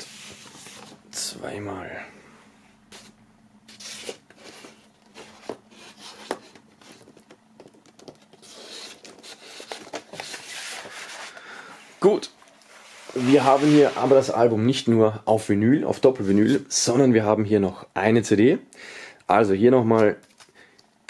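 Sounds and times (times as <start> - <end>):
sliding paper rustle: 0.0 - 1.0, 3.7 - 11.4, 12.4 - 14.4
paper and card rubbing: 2.9 - 7.2, 8.2 - 11.4, 12.7 - 14.4.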